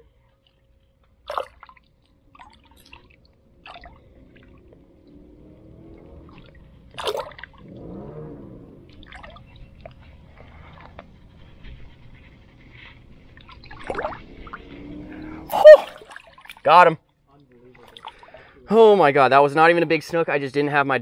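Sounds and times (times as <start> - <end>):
water splashing and dripping: 0.4 - 11.2, 13.3 - 18.5.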